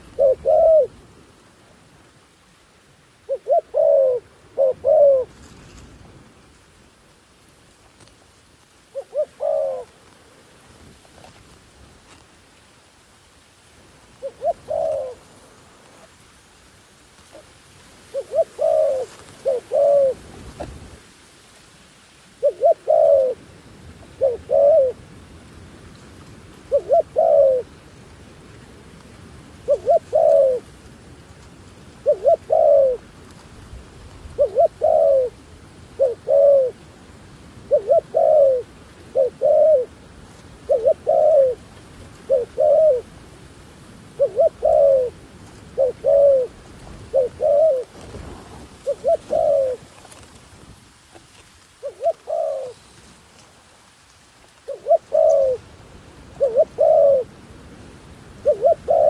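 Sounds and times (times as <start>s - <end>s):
dove cooing: 0.0s - 1.0s, 3.3s - 5.3s, 8.9s - 10.0s, 14.2s - 15.3s, 18.1s - 20.3s, 22.4s - 23.4s, 24.0s - 25.0s, 26.6s - 27.8s, 29.6s - 30.7s, 32.0s - 33.1s, 34.3s - 36.8s, 37.6s - 40.0s, 40.6s - 43.1s, 44.2s - 48.2s, 48.8s - 50.2s, 51.8s - 53.0s, 54.6s - 55.7s, 56.3s - 57.3s, 58.4s - 59.0s.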